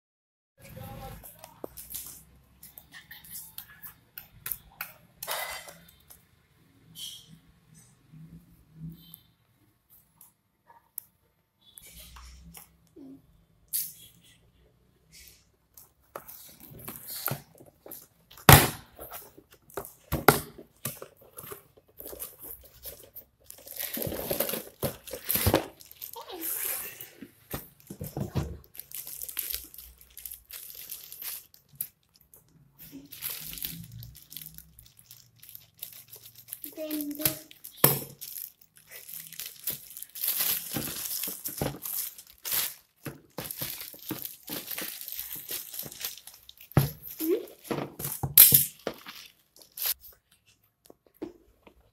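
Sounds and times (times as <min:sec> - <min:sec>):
plastic bag crinkling: 0:21.0 - 0:27.0, 0:27.7 - 0:50.0.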